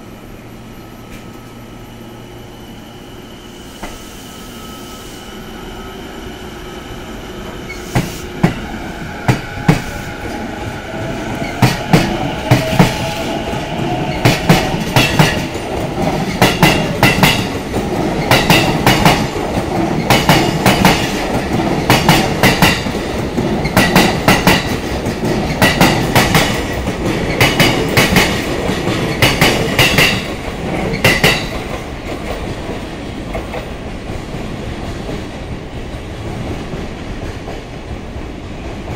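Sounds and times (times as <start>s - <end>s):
train wheels clattering over rail joints: 14.1s - 32.7s.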